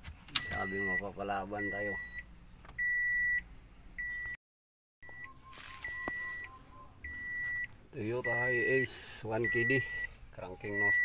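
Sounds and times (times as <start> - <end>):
electronic warning beeper pulsing: 5.0 - 11.0.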